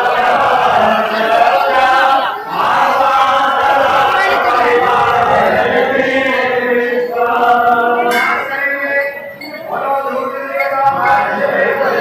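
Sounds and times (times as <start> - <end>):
voices singing devotional chant: 0.0 - 12.0.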